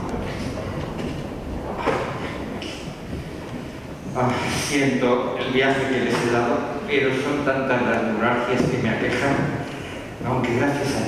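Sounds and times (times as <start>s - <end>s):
boots tramping on wooden stage: 8.4s - 11.0s.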